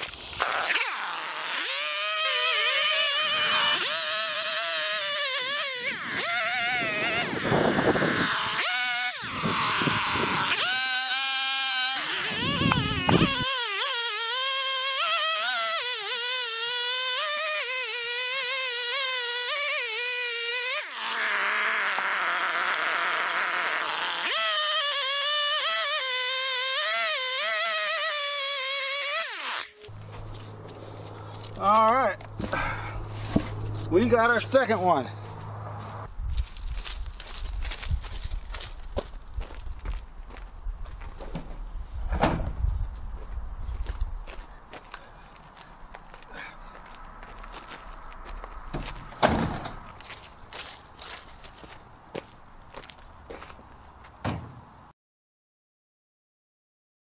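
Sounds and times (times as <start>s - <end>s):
chainsaw cutting log: 0.0s - 30.6s.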